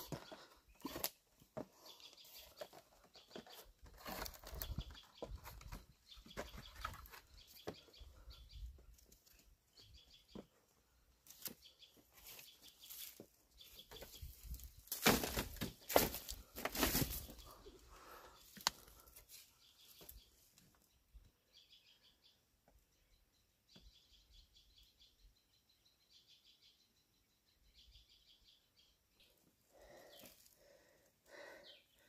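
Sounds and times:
dry straw rustling: 0:12.1 - 0:17.3.

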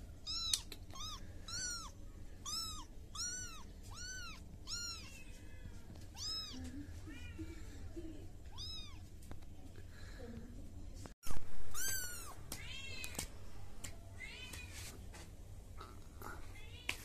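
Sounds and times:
kitten meowing: 0:00.2 - 0:06.7, 0:08.5 - 0:09.0, 0:11.7 - 0:13.2.

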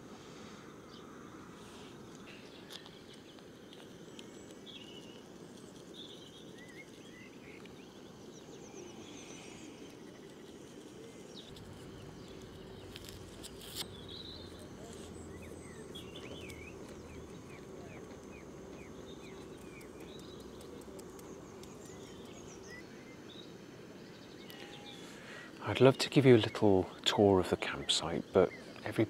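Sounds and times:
steady low hiss: 0:00.0 - 0:29.0
small birds chirping: 0:00.1 - 0:29.0.

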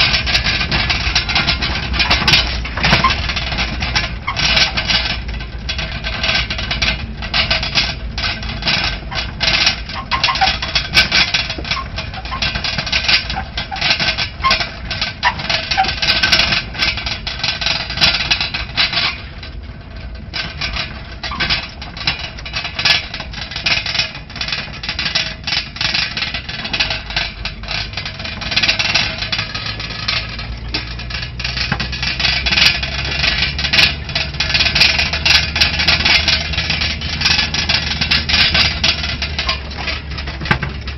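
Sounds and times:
body and load rattling: 0:00.0 - 0:40.9
off-road vehicle engine running: 0:00.0 - 0:40.9.

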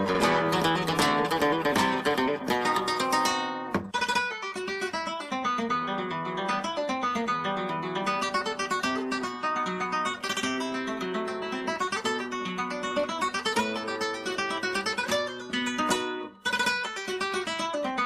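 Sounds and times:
acoustic guitar music: 0:00.0 - 0:18.0.

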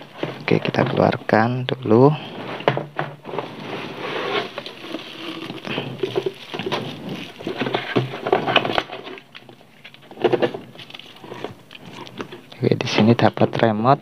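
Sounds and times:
cardboard being moved: 0:02.0 - 0:09.3
plastic bag crinkling: 0:03.3 - 0:12.9.

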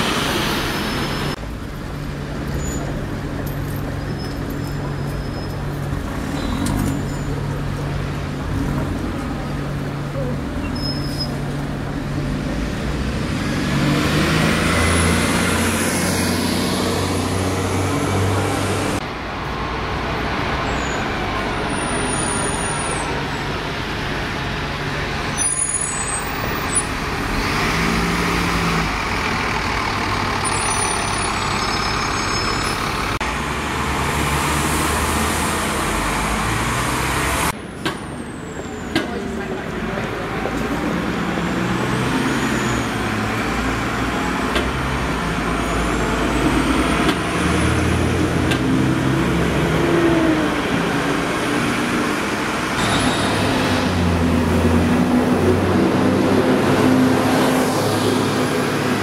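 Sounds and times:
short high squeaks: 0:10.6 - 0:11.4
diesel bus engine running: 0:26.2 - 0:34.0.

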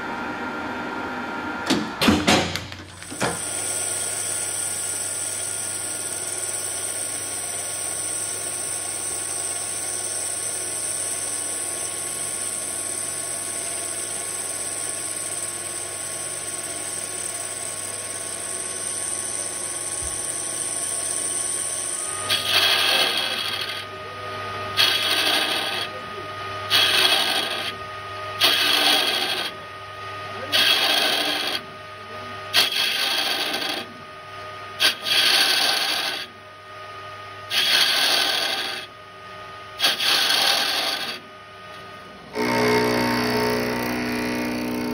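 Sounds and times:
lathe cutting steel: 0:03.2 - 0:29.6, 0:30.3 - 0:31.7, 0:32.5 - 0:34.0, 0:34.8 - 0:36.4, 0:37.5 - 0:38.9, 0:39.8 - 0:41.3, 0:42.3 - 0:44.9.

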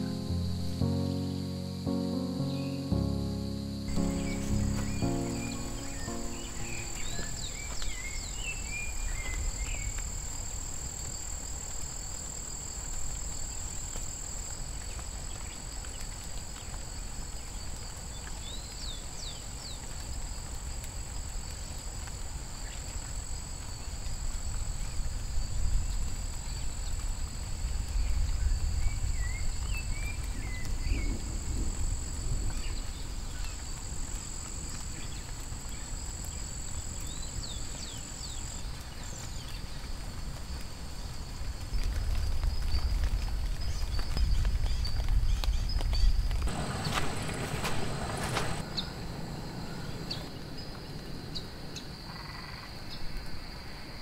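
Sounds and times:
bird chirps: 0:00.0 - 0:09.9.

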